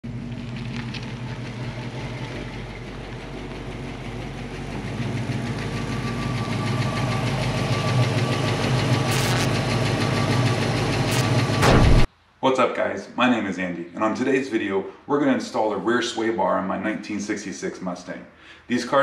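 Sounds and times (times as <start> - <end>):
car engine approaching: 0.0 - 12.1.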